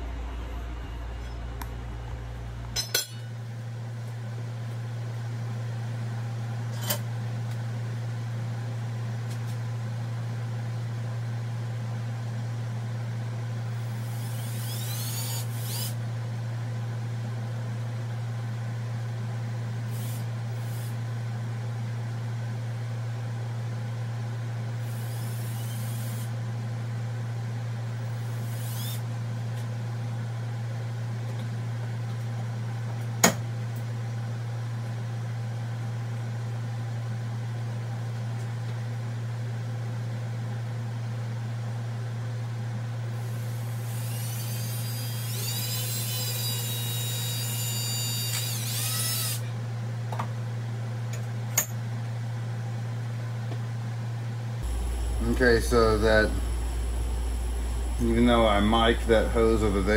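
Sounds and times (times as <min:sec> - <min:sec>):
low machine hum: 0:00.0 - 0:59.9
drill press drilling plastic: 0:14.0 - 0:16.0, 0:24.9 - 0:26.3, 0:28.3 - 0:29.0, 0:43.4 - 0:49.5.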